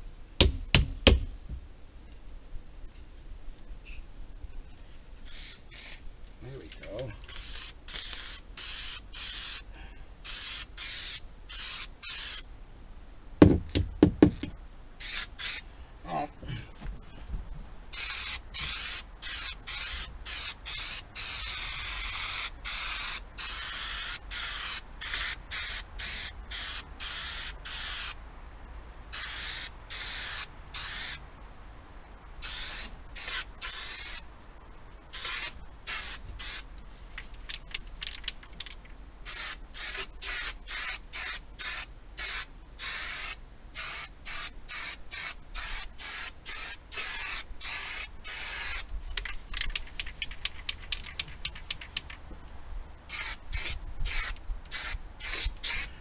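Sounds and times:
aerosol spray hissing: 0:17.9 - 0:28.2, 0:53.1 - 0:56.0.

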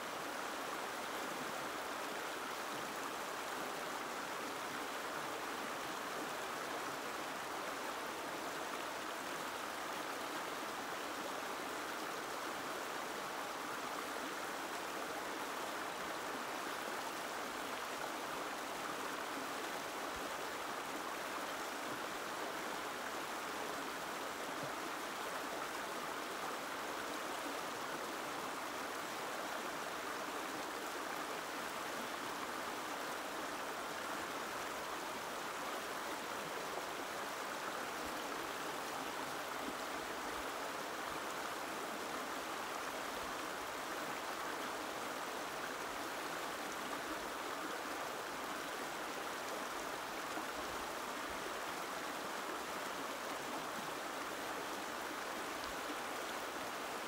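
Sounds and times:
gentle stream of running water: 0:00.0 - 0:57.0.

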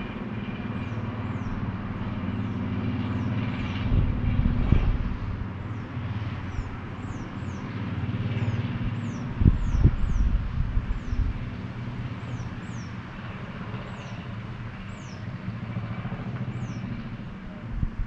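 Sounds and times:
distant road traffic: 0:00.0 - 0:18.0
wind buffeting microphone: 0:00.0 - 0:18.0.

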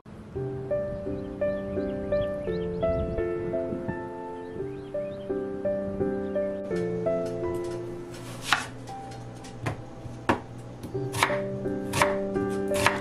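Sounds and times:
soft background music: 0:00.1 - 0:13.0
knife strokes hitting cutting board: 0:08.2 - 0:08.7.

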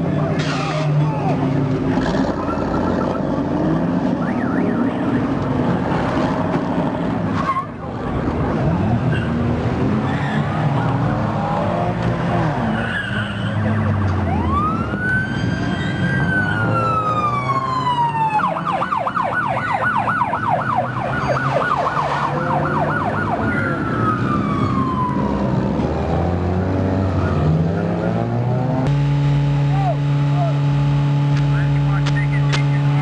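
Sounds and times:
car engines running: 0:00.0 - 0:33.0
police siren wailing and yelping: 0:04.0 - 0:05.3, 0:12.6 - 0:28.4.

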